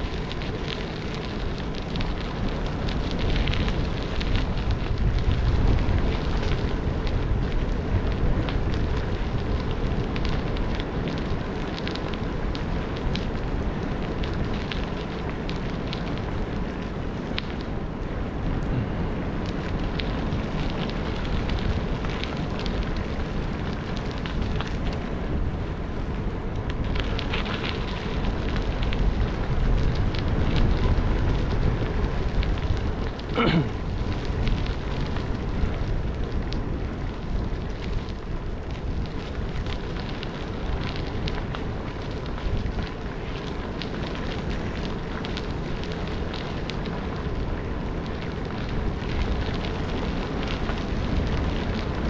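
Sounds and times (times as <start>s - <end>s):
small clicks and rattles: 0.0s - 17.7s, 19.4s - 25.2s, 26.0s - 52.0s
bicycle tyre rumble: 0.0s - 52.0s
wind buffeting microphone: 0.0s - 52.0s.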